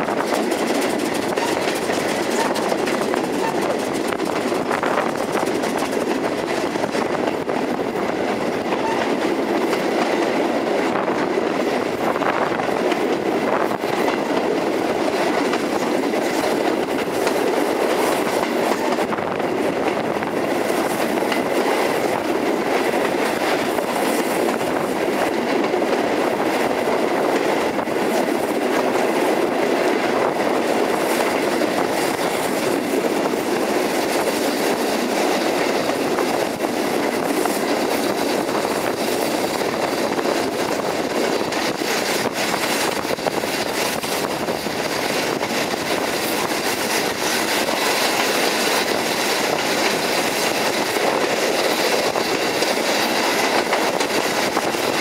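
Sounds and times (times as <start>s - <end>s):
clickety-clack of rail joints: 0.0s - 55.0s
train wheel and rail noise: 0.0s - 55.0s.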